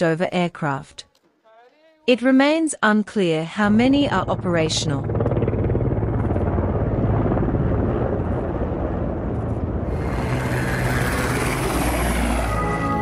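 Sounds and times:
helicopter rotor chop and engine: 3.6 - 13.0.

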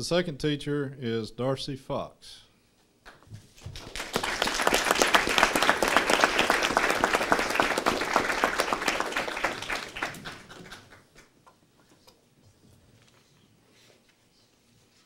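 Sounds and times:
group applauding: 3.1 - 11.4.

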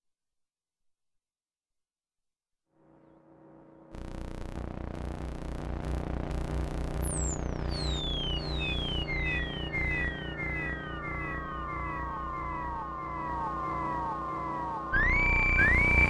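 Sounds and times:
low synthesizer pulse: 3.9 - 16.0
synthesizer drone tones: 3.9 - 16.0
high whistling synth tone: 7.0 - 16.0.

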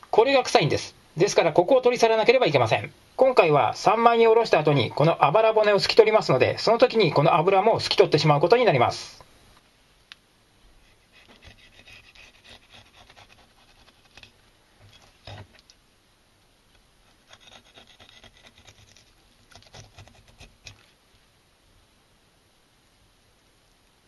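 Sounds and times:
knife scraping fish fillet: 10.9 - 15.4, 17.1 - 20.8.

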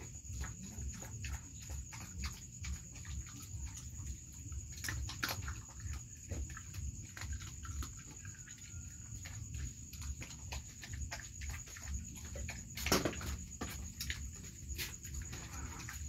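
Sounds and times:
dog chewing and licking: 0.0 - 16.0.

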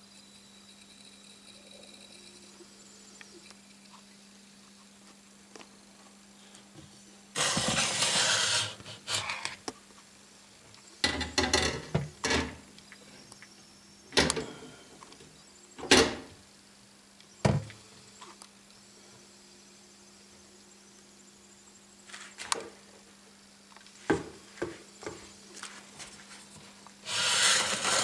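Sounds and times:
glass sliding in metal track: 7.4 - 9.4, 27.0 - 28.0.

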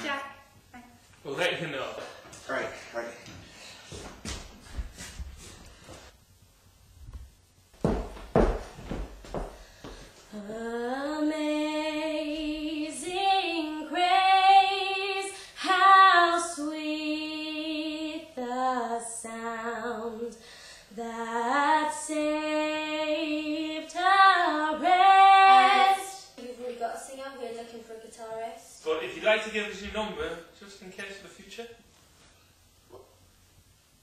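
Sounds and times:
short breaths: 20.4 - 20.9
woman singing solo: 21.0 - 26.3.

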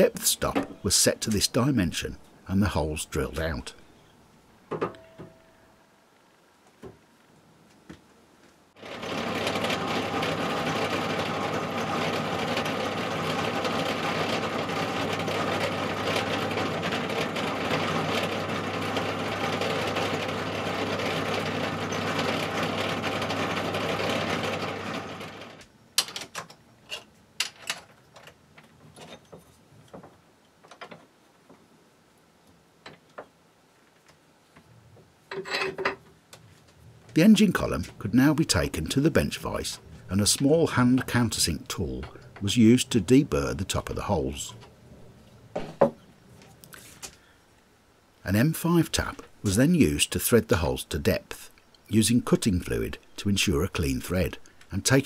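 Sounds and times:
pillar drill drilling: 8.8 - 25.6.

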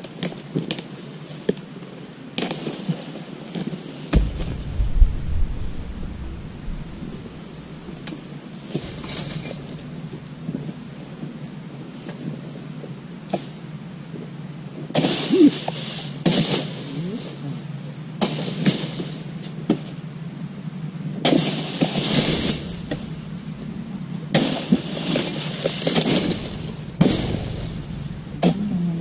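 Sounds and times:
palm frond crashing down: 4.2 - 10.3, 21.4 - 23.8, 24.4 - 28.6.

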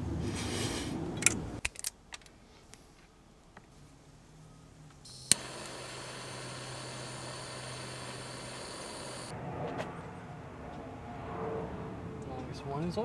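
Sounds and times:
butane torch hissing: 5.1 - 9.3
igniter click: 5.1 - 9.3.

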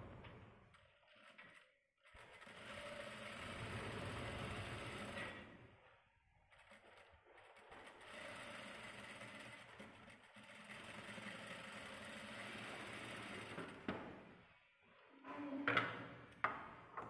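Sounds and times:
industrial sewing machine stitching: 1.1 - 5.9, 6.5 - 14.3.

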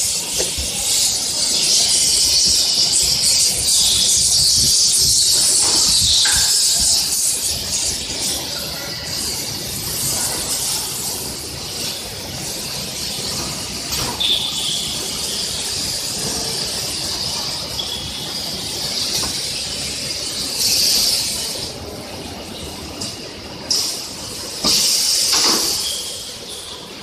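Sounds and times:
factory machinery noise: 0.0 - 27.0
short high squeals: 25.7 - 26.9.

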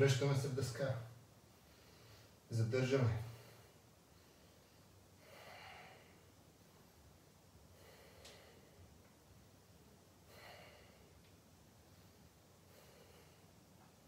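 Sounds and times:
man breathing softly: 1.5 - 2.5, 3.2 - 7.0, 7.6 - 9.2, 10.2 - 14.0.

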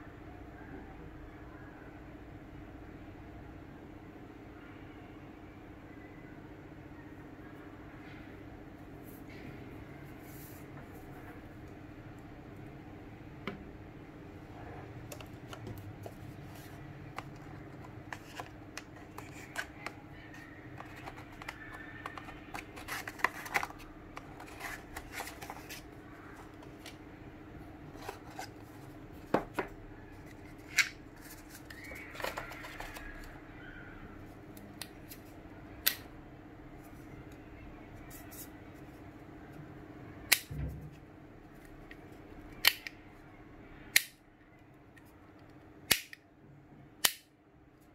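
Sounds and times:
packaging rustling: 15.1 - 26.9.

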